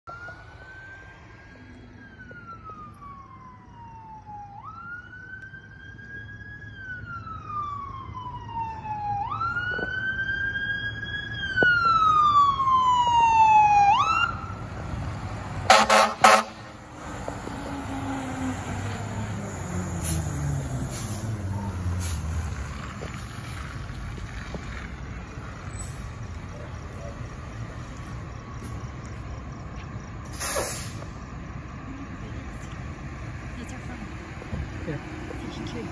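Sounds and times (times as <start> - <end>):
fire engine siren wailing: 0.1 - 35.8
diesel engine passing: 0.1 - 35.9
air horn blasts: 15.7 - 16.7.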